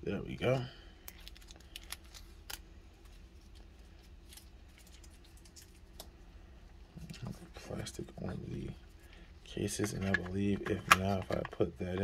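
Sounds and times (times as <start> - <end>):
plastic film peeling: 1.0 - 6.0
plastic crinkles and clicks: 1.0 - 6.1.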